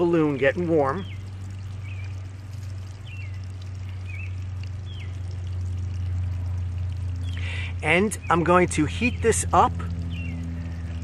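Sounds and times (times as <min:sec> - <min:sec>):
low hum: 0:00.0 - 0:11.0
water trickling and pouring: 0:00.0 - 0:11.0
bird chirps: 0:00.2 - 0:02.2, 0:03.0 - 0:05.2, 0:10.0 - 0:10.9.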